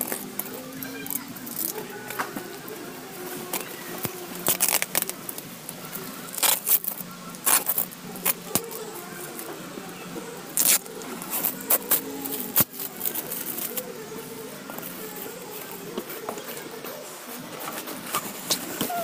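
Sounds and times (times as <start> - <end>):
plastic wrap crinkling rips: 0.0 - 9.5, 10.5 - 13.9.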